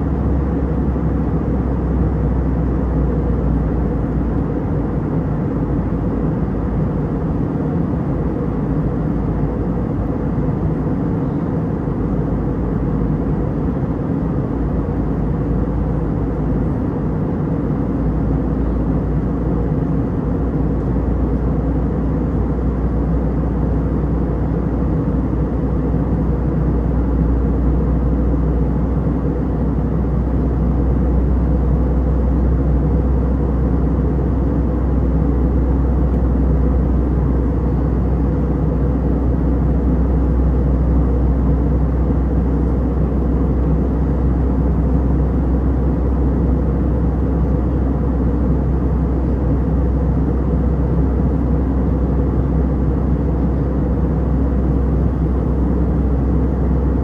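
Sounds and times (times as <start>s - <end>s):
aircraft cabin engine drone: 0.0s - 57.0s.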